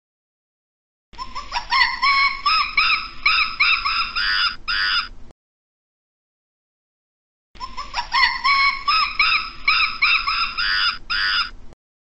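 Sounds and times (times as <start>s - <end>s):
primate hooting: 1.2s - 5.1s, 7.6s - 11.6s.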